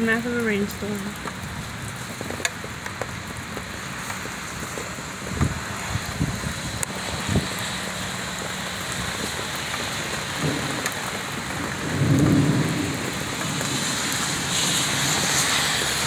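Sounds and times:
heavy rain on pavement: 0.0s - 16.0s
car tyres hissing on wet road: 0.2s - 16.0s.

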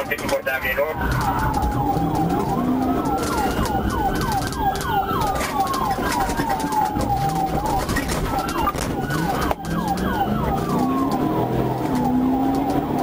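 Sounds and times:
police siren yelp and wail: 0.0s - 13.0s
road and engine noise: 0.0s - 13.0s.

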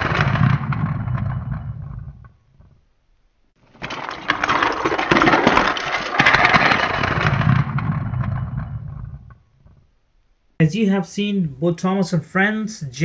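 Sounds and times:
toy cars rolling rattling rumble: 0.0s - 2.8s, 3.6s - 9.9s.

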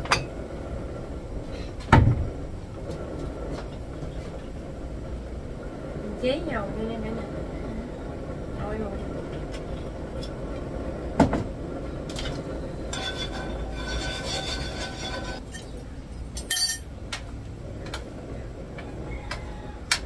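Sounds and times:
steady low rumble: 0.0s - 19.1s
cookware clinking: 12.9s - 15.8s, 16.4s - 16.9s.

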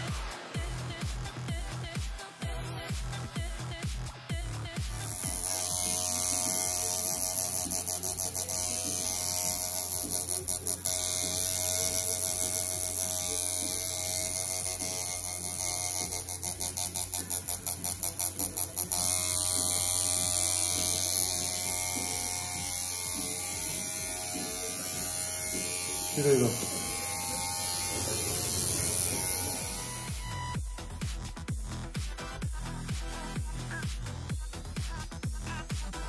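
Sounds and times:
tattoo machine humming: 4.8s - 31.0s.

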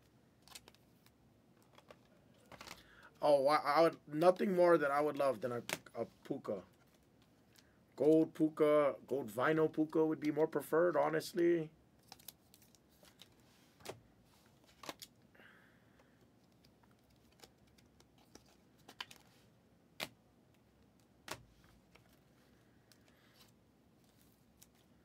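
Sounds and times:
trading cards and plastic sleeves clicking: 0.4s - 2.9s, 12.0s - 14.0s, 16.0s - 19.3s.

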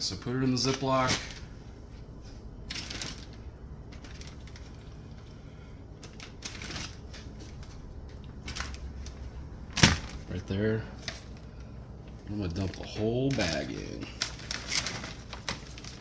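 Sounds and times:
plastic bag crinkling: 2.6s - 5.3s, 6.0s - 16.0s.

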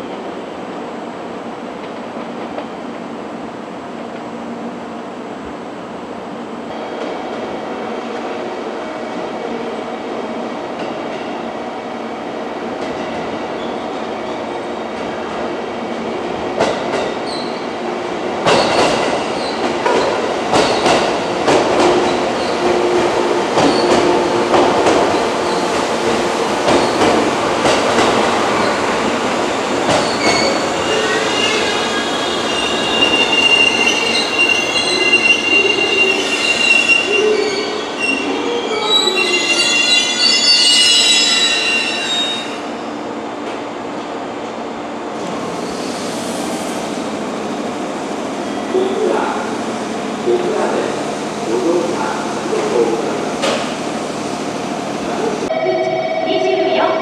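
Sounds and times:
high-pitched wheel squeal: 30.0s - 42.6s.

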